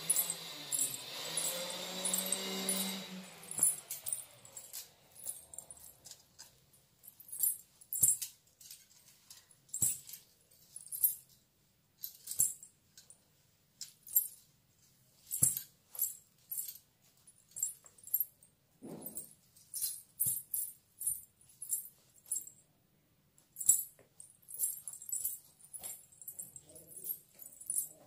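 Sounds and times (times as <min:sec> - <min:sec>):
ankle bells jingling with steps: 0:00.0 - 0:06.0, 0:23.6 - 0:28.0.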